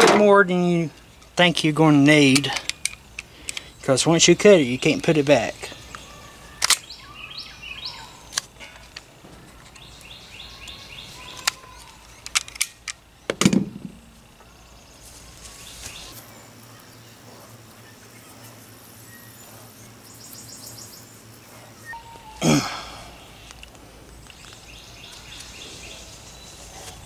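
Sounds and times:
rope and metal clip clicking: 11.3s - 13.6s.

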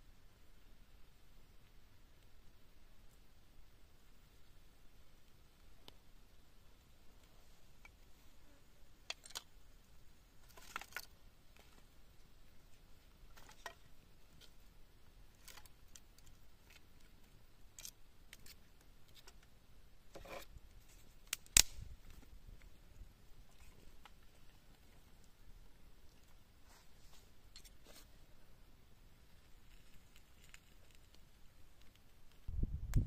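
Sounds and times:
dry twigs breaking: 21.2s - 21.8s
sharp twig crack: 21.2s - 22.0s.

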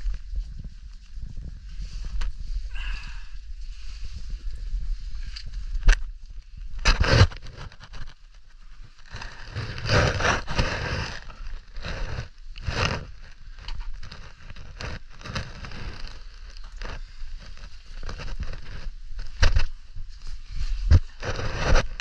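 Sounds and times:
clothing and gear rubbing on rock: 6.6s - 22.0s.

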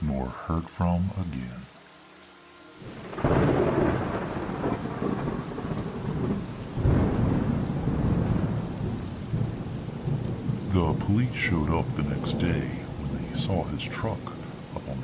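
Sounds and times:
steady rain: 0.0s - 15.0s
thunder: 2.9s - 10.8s.

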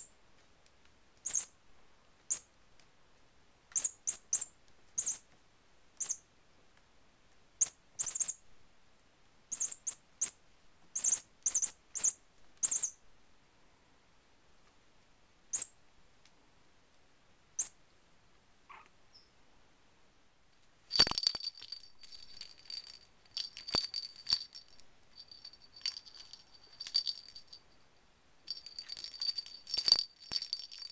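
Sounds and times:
cat toy squeaking: 9.5s - 10.3s, 11.0s - 12.9s.

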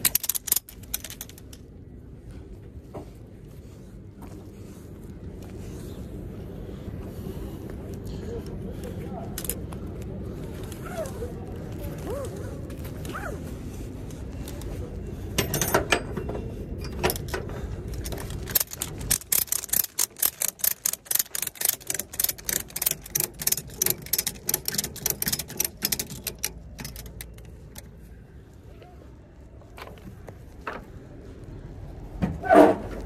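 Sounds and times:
ratchet strap clicking: 0.0s - 1.6s, 16.9s - 27.9s.

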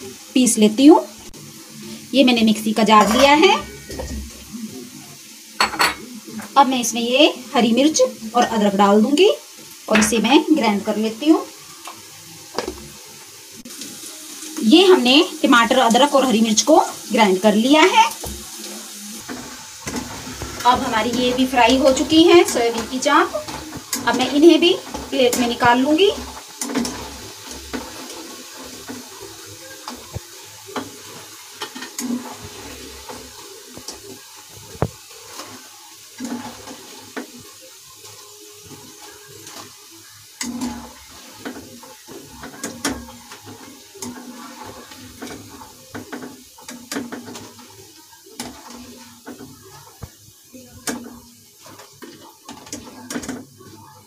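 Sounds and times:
food sizzling in frying oil: 0.0s - 54.0s
metal skimmer scraping pan: 2.8s - 4.5s, 5.6s - 6.1s.

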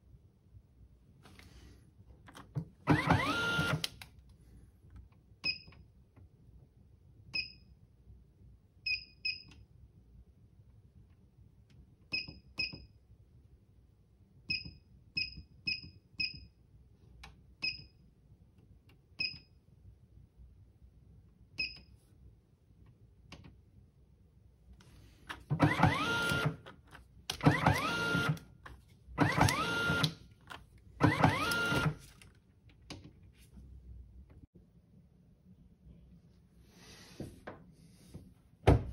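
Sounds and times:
printer motor whirring: 2.8s - 3.9s, 25.5s - 26.6s, 27.3s - 28.4s, 29.2s - 30.2s, 31.0s - 32.1s.

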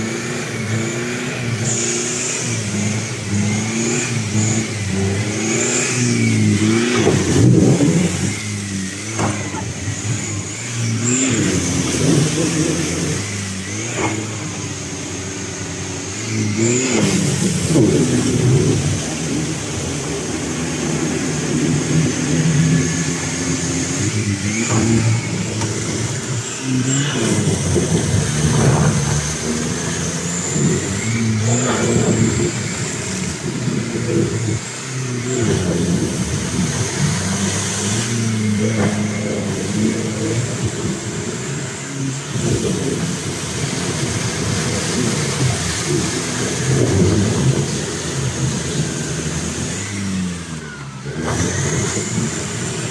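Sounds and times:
diesel engine revving: 0.0s - 52.9s
tyres spinning in mud: 16.1s - 52.9s.

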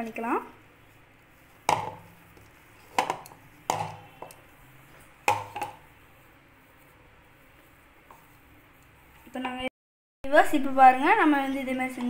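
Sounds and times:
bowl knocking against table: 1.7s - 2.1s, 2.9s - 4.1s.

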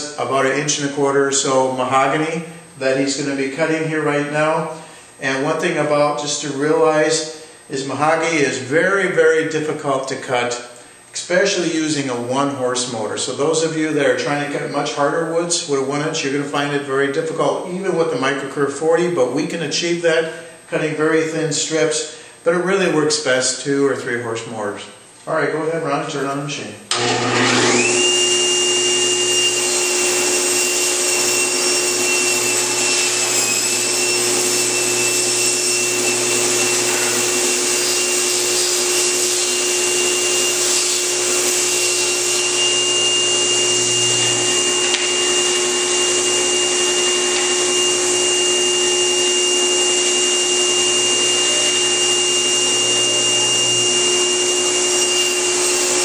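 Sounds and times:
table saw whining: 26.9s - 56.0s.

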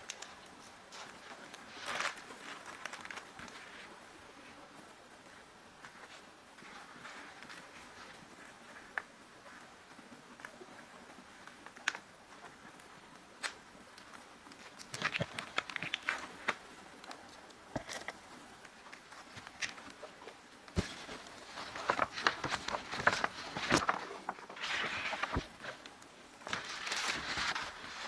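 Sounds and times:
paper and plastic rustling: 0.0s - 3.9s, 14.5s - 28.0s.

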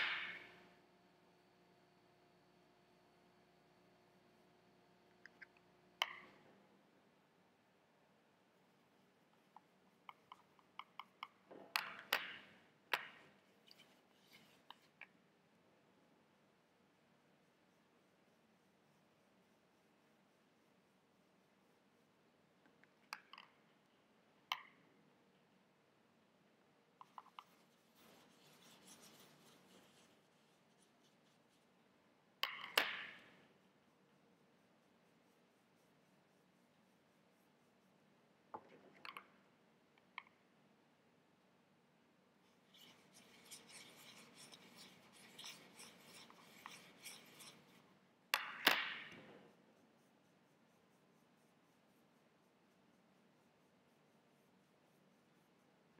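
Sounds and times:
paintbrush scrubbing in palette: 13.5s - 15.0s, 27.0s - 32.0s, 42.5s - 48.0s.

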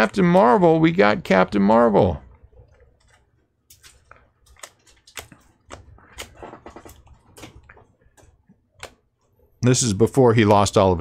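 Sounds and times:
foil card packs crinkling: 2.3s - 9.2s
cards being shuffled: 2.6s - 9.4s.

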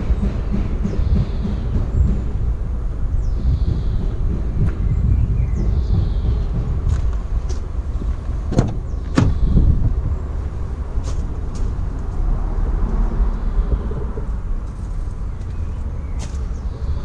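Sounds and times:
steady low rumble: 0.0s - 17.0s
van door clicks and knocks: 8.4s - 9.6s.

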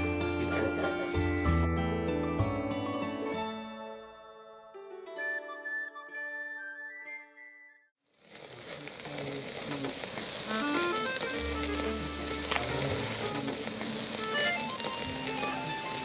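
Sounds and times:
beef sizzling on a grill: 0.0s - 1.7s, 8.1s - 16.0s
sharp pops: 8.3s - 15.5s.

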